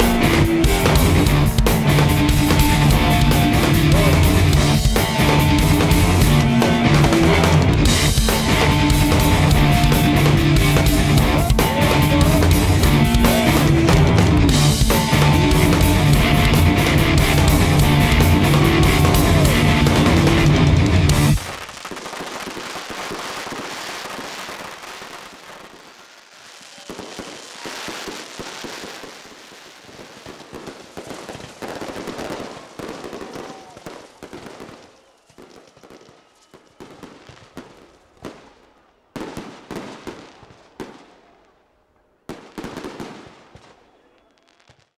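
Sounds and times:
crackles pops and bangs: 0:20.0 - 0:41.6, 0:42.3 - 0:45.0.

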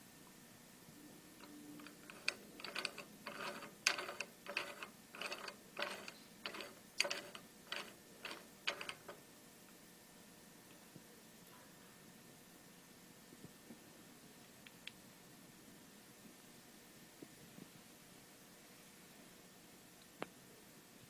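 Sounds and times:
vise screw clicking and rattling: 0:01.8 - 0:09.2.

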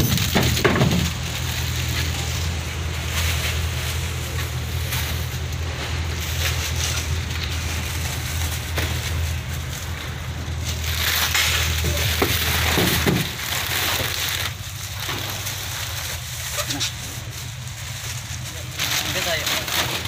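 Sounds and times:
boat engine humming: 0:00.0 - 0:20.0
plastic bags crinkling: 0:00.0 - 0:20.0.

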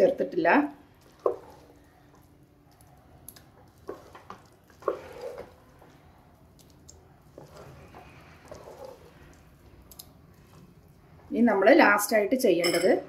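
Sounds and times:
spoon stirring food in a pan: 0:00.8 - 0:11.3.

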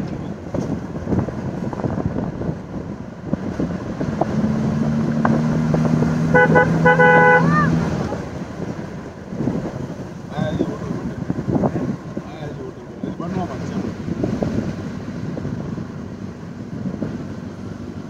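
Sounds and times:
vehicle driving rumble: 0:00.0 - 0:18.0
vehicle horn honking: 0:06.2 - 0:07.8.

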